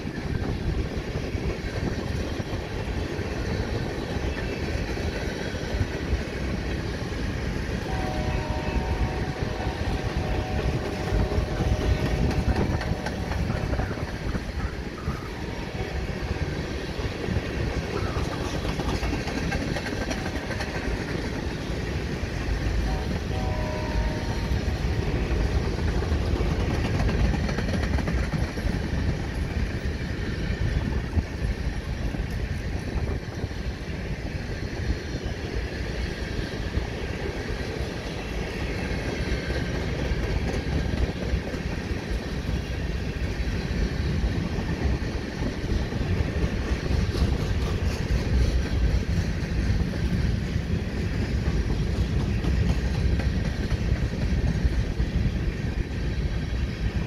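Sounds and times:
freight train wheels rumbling: 0.0 - 57.0
faint train horn chord: 7.8 - 13.8, 22.8 - 25.2.

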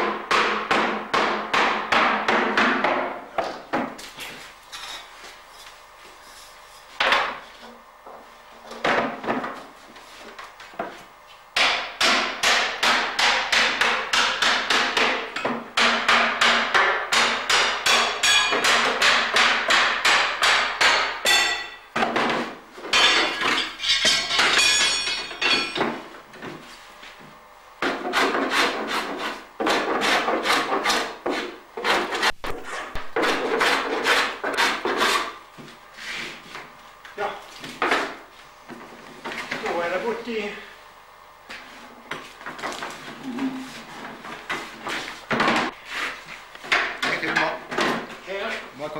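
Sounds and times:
hammer striking wooden barrel: 0.0 - 4.0, 11.6 - 26.0.

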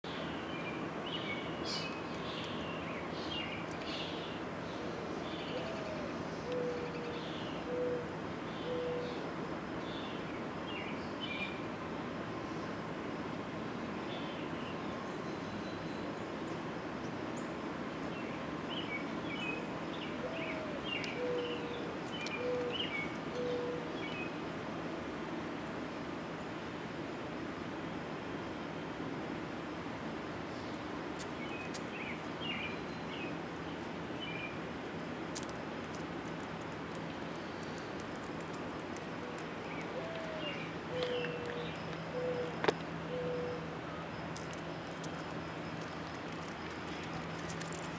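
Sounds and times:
outdoor background noise: 0.0 - 47.9
songbirds chirping and trilling: 0.1 - 25.8, 30.5 - 47.9
low soft cooing call: 4.8 - 9.2, 20.2 - 24.0, 39.2 - 43.7.

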